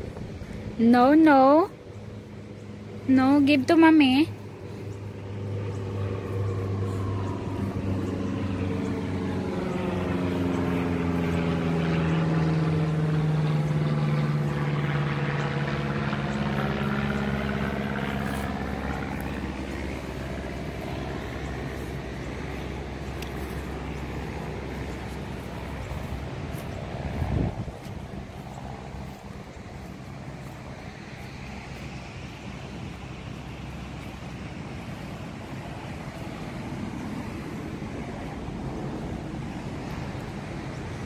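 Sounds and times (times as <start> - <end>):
aircraft engine passing overhead: 0.0 - 41.0.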